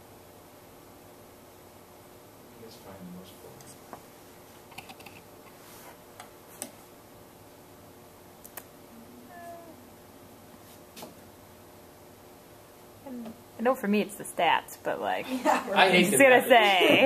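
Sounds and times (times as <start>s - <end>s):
faint sharp clicks: 8.4s - 8.7s.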